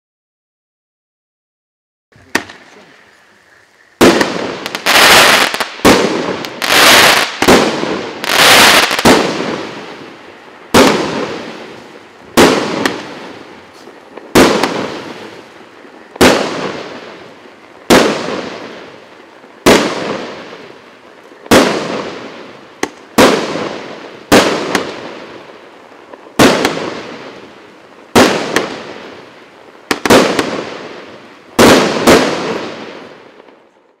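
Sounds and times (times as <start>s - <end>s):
firework cake bangs: 4.0s - 9.9s, 10.7s - 11.6s, 12.3s - 15.4s, 17.8s - 18.8s, 19.6s - 20.4s, 21.5s - 25.2s, 26.4s - 27.2s, 28.2s - 29.2s, 29.9s - 31.0s, 31.6s - 33.1s.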